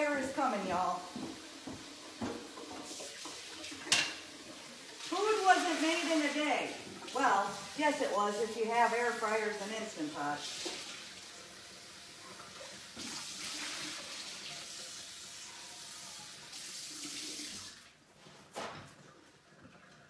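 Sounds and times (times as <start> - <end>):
tap running into sink: 1.1 - 4.2.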